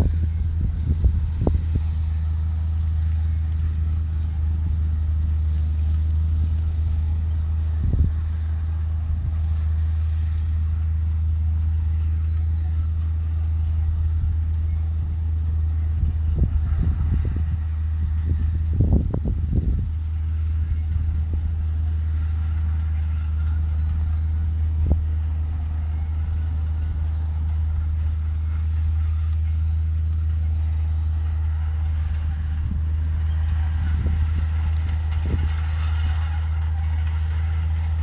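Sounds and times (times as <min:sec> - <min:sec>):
heavy diesel engine running: 0:00.0 - 0:38.0.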